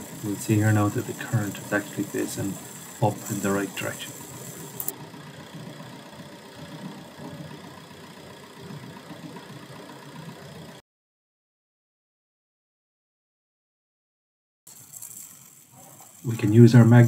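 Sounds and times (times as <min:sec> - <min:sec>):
diesel engine idling: 0:00.0 - 0:10.8.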